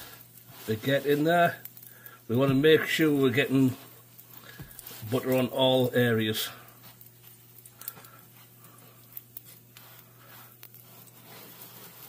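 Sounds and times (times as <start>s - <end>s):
bread scuffing on a griddle: 0.0s - 1.6s, 9.4s - 12.0s
steady low hum: 0.0s - 12.0s.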